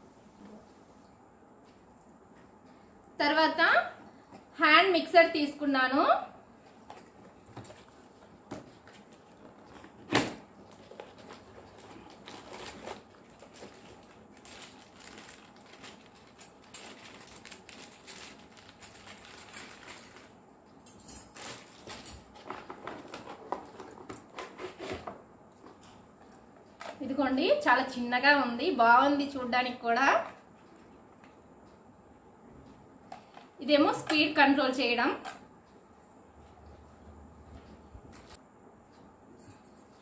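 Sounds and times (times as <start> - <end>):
cardboard and plastic rustling: 6.9 - 20.4.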